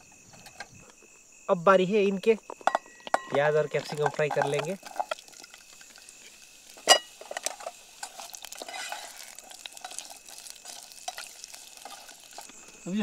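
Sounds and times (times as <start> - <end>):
vegetables sizzling in hot oil: 3.8 - 13.0
metal spoon scraping: 6.8 - 10.1.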